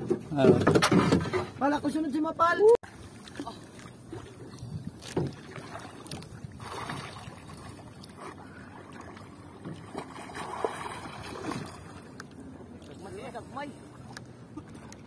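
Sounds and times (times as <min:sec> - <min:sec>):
sea water lapping around boat: 0:00.0 - 0:15.0
short sharp splashes: 0:09.8 - 0:12.0.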